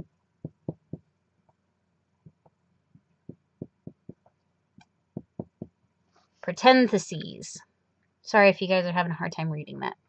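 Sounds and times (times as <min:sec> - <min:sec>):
marker writing on whiteboard: 0:05.2 - 0:05.8.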